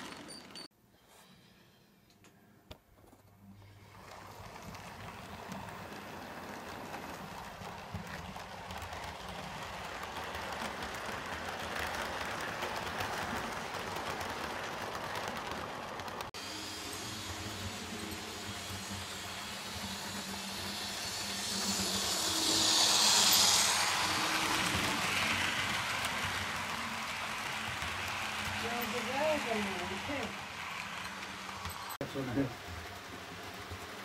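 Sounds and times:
model train wheels rattling on track: 0:00.0 - 0:00.7, 0:03.9 - 0:34.0.

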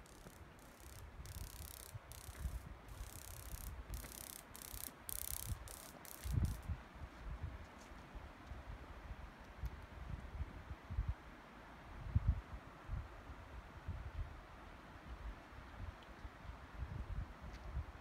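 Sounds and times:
high hiss: 0:00.0 - 0:06.7
wind rumbling on microphone: 0:00.0 - 0:11.3, 0:11.9 - 0:14.4, 0:15.1 - 0:18.0.

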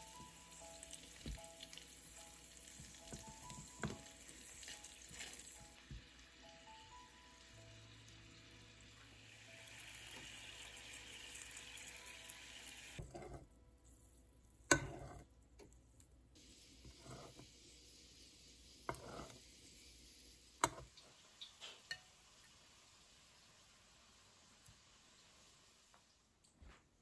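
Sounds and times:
vegetables sizzling in oil: 0:00.0 - 0:13.0, 0:16.4 - 0:26.2
metal spoon scraping pan: 0:13.0 - 0:13.4, 0:14.7 - 0:15.3, 0:16.8 - 0:17.4, 0:18.9 - 0:19.4.

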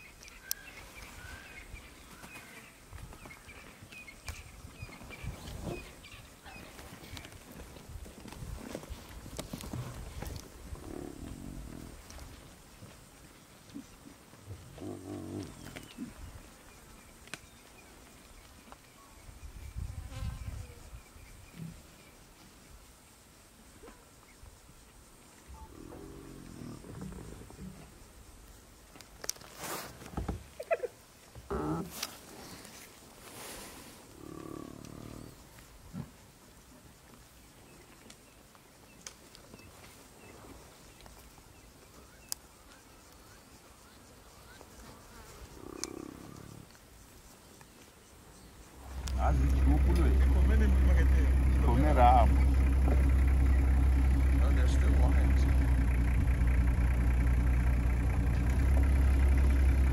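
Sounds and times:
faint chirps and clicks: 0:00.0 - 0:01.2, 0:01.8 - 0:07.4, 0:15.3 - 0:19.1, 0:23.8 - 0:29.5, 0:34.2 - 0:35.8, 0:37.0 - 0:51.0
wild animal call: 0:45.4 - 0:46.7.

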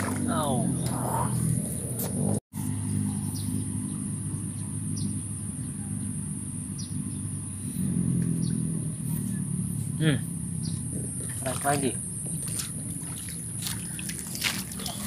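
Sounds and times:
low motor drone: 0:00.0 - 0:15.0.

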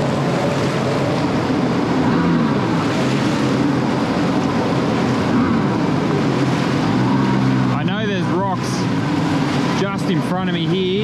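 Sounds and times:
jet ski engine at low revs: 0:00.0 - 0:11.0
water rushing: 0:00.0 - 0:11.0
wind on microphone: 0:00.0 - 0:11.0.

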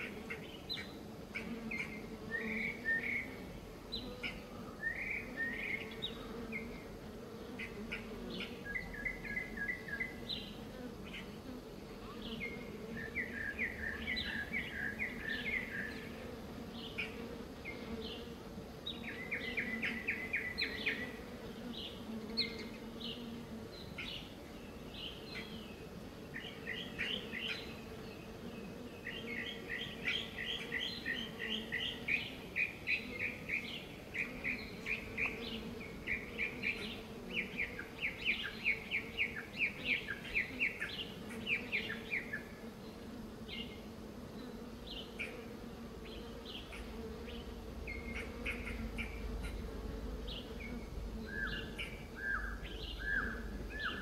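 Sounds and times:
bees buzzing: 0:00.0 - 0:54.0
small birds chirping: 0:00.0 - 0:54.0.

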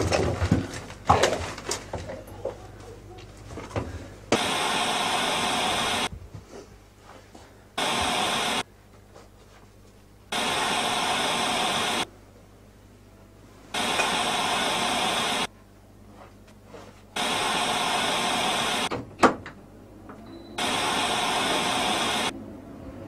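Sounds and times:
television static hiss: 0:04.2 - 0:06.1, 0:07.8 - 0:08.8, 0:09.9 - 0:16.1, 0:17.1 - 0:18.9, 0:20.6 - 0:22.4.

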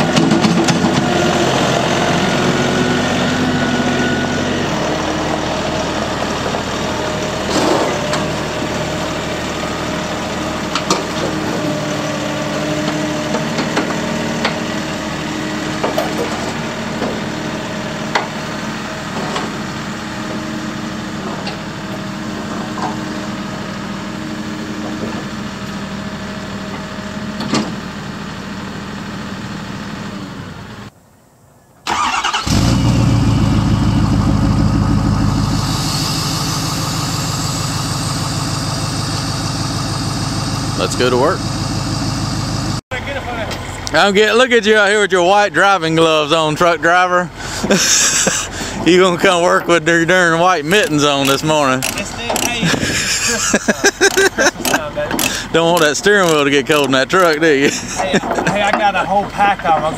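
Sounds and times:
tractor diesel engine running: 0:00.0 - 0:30.9, 0:31.9 - 0:59.9
pickup engine starting: 0:31.8 - 0:59.5
sharp metal clanks: 0:50.9 - 0:52.6, 0:54.0 - 0:56.4.

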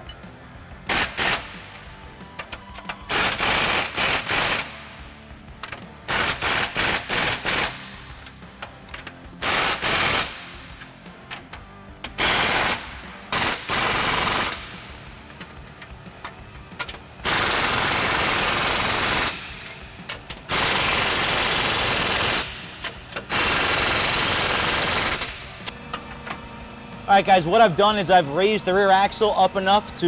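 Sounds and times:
impact wrench hammering: 0:05.6 - 0:26.1.

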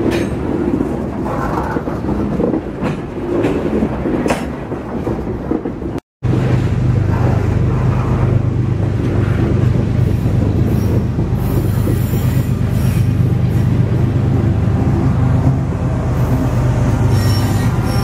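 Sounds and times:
train wheels rumbling on rails: 0:00.0 - 0:18.0
high-pitched wheel squeal: 0:17.0 - 0:18.0.

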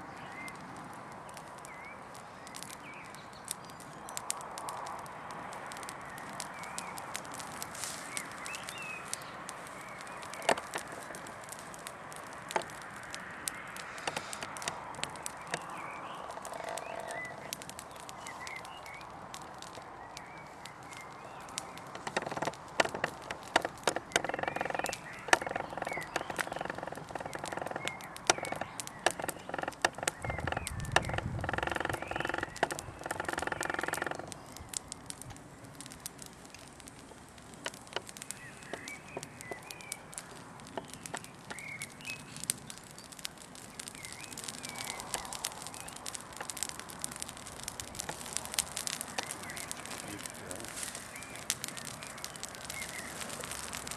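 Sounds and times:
twig fire crackling and popping: 0:00.0 - 0:53.9
faint bird chirps: 0:13.5 - 0:19.2, 0:23.9 - 0:34.7.

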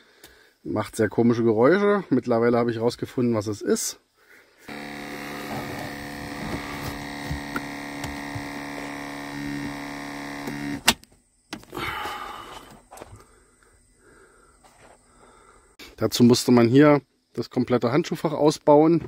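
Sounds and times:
ventilation motor humming with ticks: 0:04.7 - 0:11.0.

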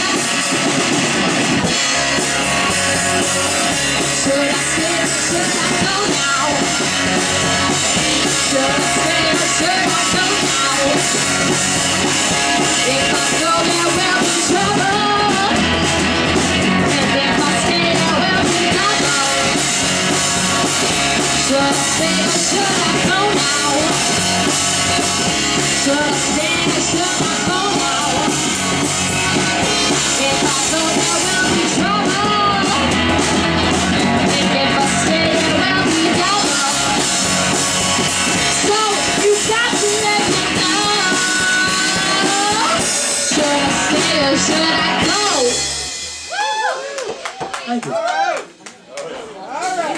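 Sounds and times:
bass guitar: 0:00.0 - 0:47.1
drum kit: 0:00.0 - 0:47.8
electric guitar: 0:00.0 - 0:47.8
woman singing into microphone: 0:04.0 - 0:07.0, 0:08.2 - 0:11.6, 0:12.6 - 0:15.8, 0:16.8 - 0:19.9, 0:21.2 - 0:24.6, 0:25.6 - 0:28.6, 0:29.7 - 0:33.1, 0:34.1 - 0:37.3, 0:38.3 - 0:45.8.

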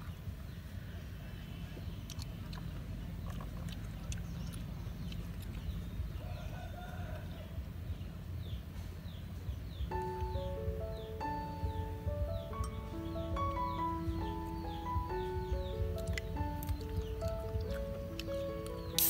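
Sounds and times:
steady low rumble: 0:07.2 - 0:19.0
music with held notes: 0:09.9 - 0:19.0.

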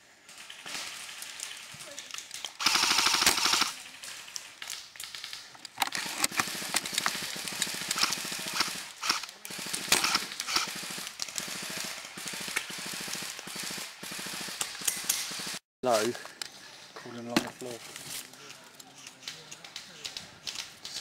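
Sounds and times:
sharp gun cracks: 0:01.1 - 0:15.6
automatic gunfire rattle: 0:02.6 - 0:03.8, 0:05.1 - 0:13.3.

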